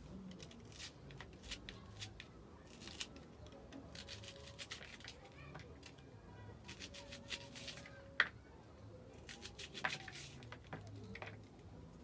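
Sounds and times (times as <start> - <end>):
knife slicing cabbage: 6.7 - 7.9, 9.2 - 10.4.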